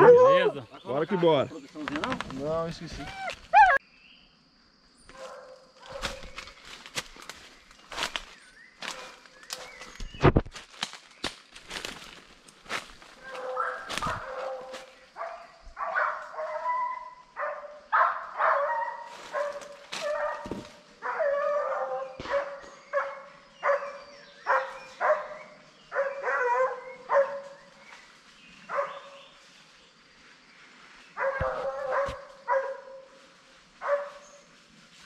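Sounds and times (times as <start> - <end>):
dogs barking and baying: 3.0 - 3.8, 13.1 - 27.6, 28.7 - 29.2, 31.2 - 33.1, 33.8 - 34.4.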